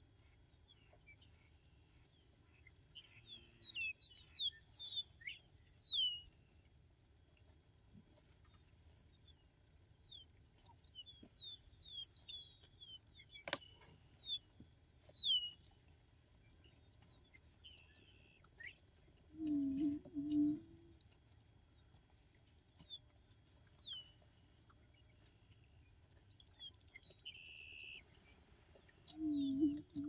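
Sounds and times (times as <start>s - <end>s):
birds chirping: 0.2s - 6.8s, 10.0s - 15.8s, 16.4s - 21.0s, 21.6s - 30.0s.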